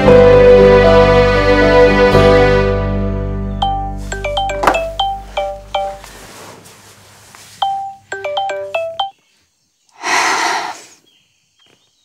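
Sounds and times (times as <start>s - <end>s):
phone ringtone melody: 3.6s - 6.1s, 7.6s - 9.2s.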